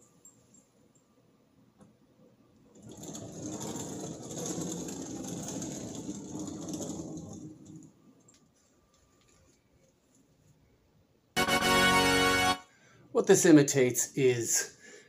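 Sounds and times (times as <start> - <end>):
metal discs rattling on wall: 2.7 - 8.0.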